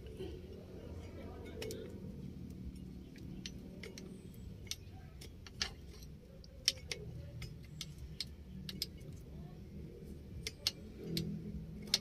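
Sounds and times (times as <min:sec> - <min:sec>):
steady low hum: 0:00.0 - 0:12.0
light clicks from handled wiring: 0:01.4 - 0:09.3, 0:10.3 - 0:12.0.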